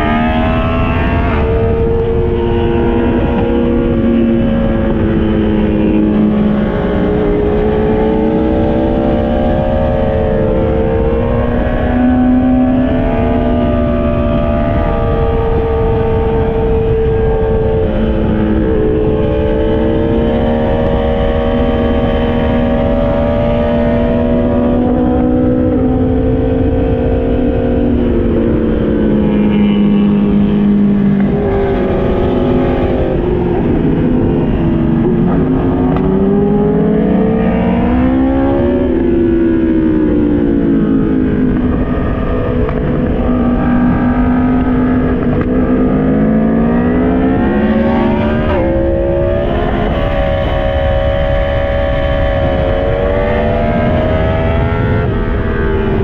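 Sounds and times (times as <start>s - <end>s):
motorcycle engine revving: 0.0s - 56.0s
wind noise: 0.0s - 56.0s.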